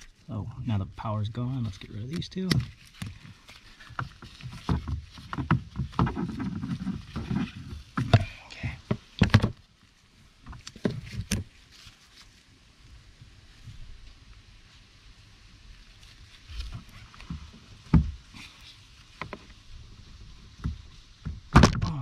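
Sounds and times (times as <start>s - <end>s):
gloved hands rustling: 0.9s - 12.4s
wires snapping as cut: 2.1s - 3.1s.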